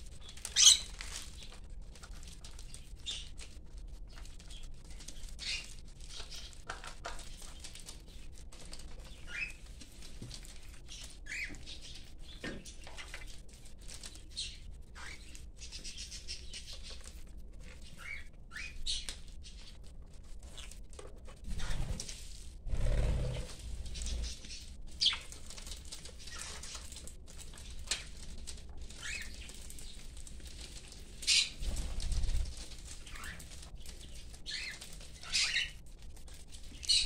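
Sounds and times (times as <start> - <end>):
birds pecking on newspaper: 0.0 - 37.0.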